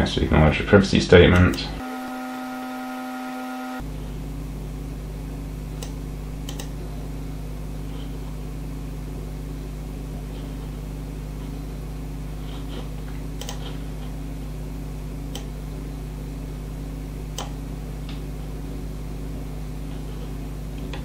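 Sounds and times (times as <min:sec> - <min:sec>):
low electrical hum: 0:00.0 - 0:21.0
mouse clicks: 0:05.8 - 0:06.7, 0:13.4 - 0:13.8, 0:15.3 - 0:15.5, 0:17.3 - 0:17.6.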